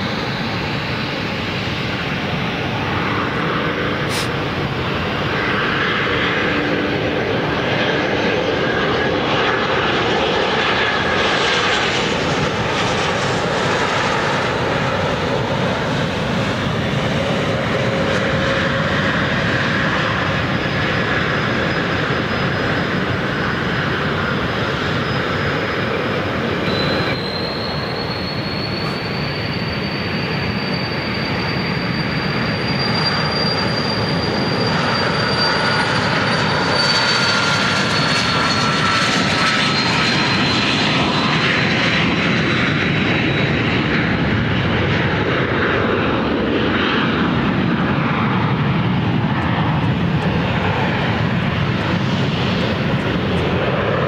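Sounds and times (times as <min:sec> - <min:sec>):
jet engine rushing: 0:00.0 - 0:54.0
thin high whine: 0:26.6 - 0:38.1.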